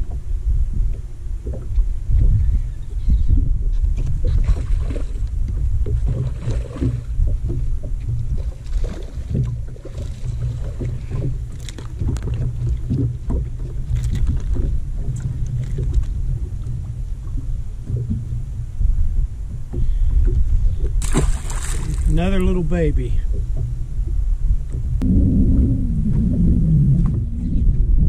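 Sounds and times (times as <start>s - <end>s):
water lapping against a hull: 0.0s - 28.0s
wind rumble on microphone: 0.0s - 28.0s
small knocks and splashes: 4.3s - 16.1s, 20.9s - 22.2s.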